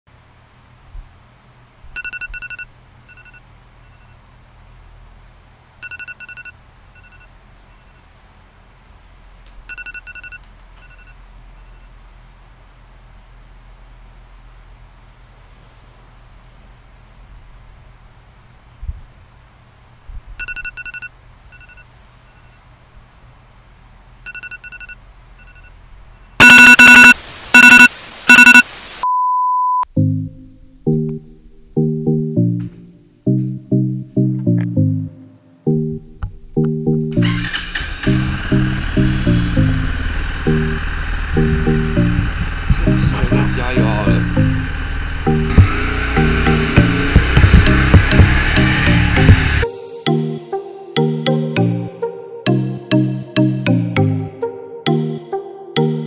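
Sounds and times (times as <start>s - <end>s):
shrill alarm beeps: 26.4s - 28.7s
steady single tone: 26.4s - 30.2s
music: 29.9s - 56.0s.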